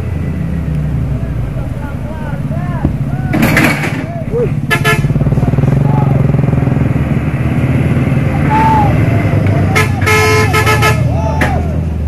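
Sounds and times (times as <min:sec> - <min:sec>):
diesel truck engines running: 0:00.0 - 0:12.0
motorcycle passing: 0:00.0 - 0:12.0
vehicle horn toot: 0:04.7 - 0:05.2, 0:09.6 - 0:11.2.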